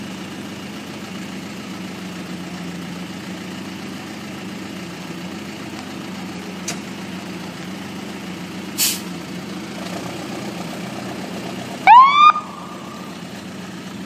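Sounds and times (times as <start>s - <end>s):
brief loud hiss: 8.8s - 9.1s
helicopter engine idling: 10.4s - 14.0s.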